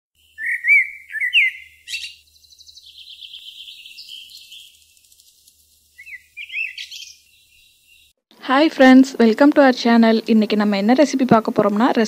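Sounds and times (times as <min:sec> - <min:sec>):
bird chirping and trilling: 0:00.2 - 0:08.2.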